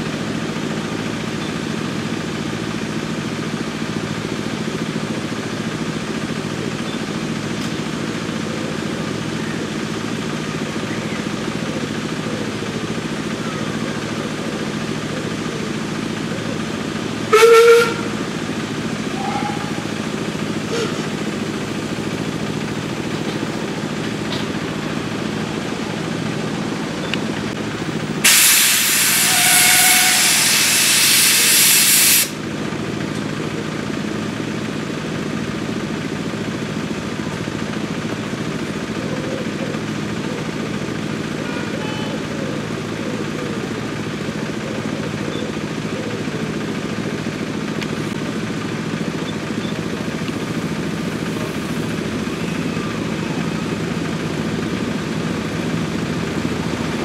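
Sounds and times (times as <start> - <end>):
low engine hum: 0.0 - 31.6, 32.2 - 57.0
steam hissing: 17.2 - 32.4.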